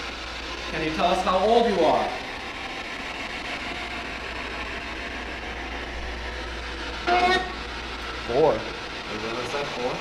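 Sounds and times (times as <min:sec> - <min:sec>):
radio static hiss: 0:06.8 - 0:10.0.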